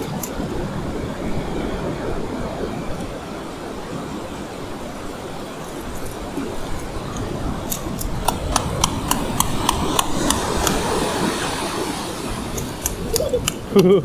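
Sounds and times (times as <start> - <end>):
surf washing onto beach: 0.0 - 14.0
rapid sharp clicks: 7.7 - 10.8, 12.5 - 13.7.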